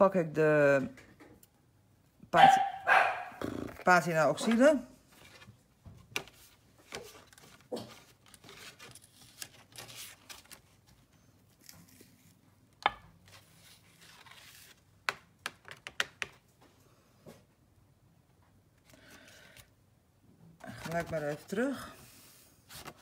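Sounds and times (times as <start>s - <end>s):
paper rustling: 5.1s - 12.4s, 13.2s - 14.9s, 20.6s - 21.7s, 22.7s - 23.0s.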